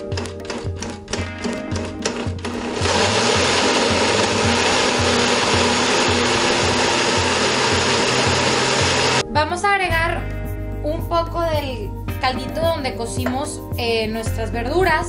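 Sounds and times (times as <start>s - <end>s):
blender running: 2.0s - 9.2s.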